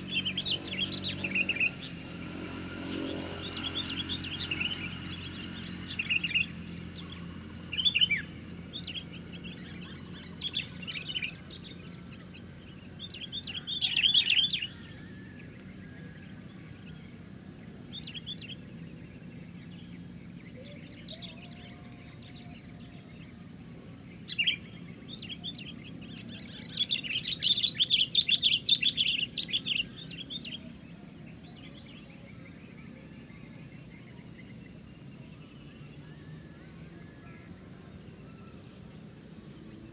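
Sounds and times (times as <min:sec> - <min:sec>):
birds chattering calls: 0:24.1 - 0:32.0.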